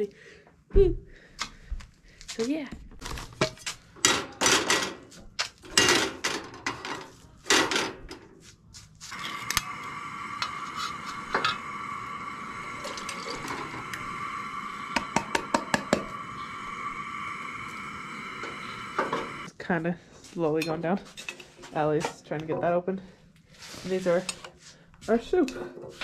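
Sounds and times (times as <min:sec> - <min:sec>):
camp stove hissing: 0:09.1 - 0:19.5
can tapping against pan: 0:14.9 - 0:16.1.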